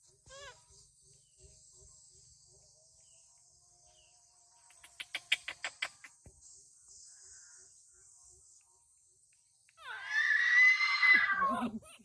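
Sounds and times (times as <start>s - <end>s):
insects droning: 0.1s - 11.6s
bird chirping: 0.3s - 8.2s.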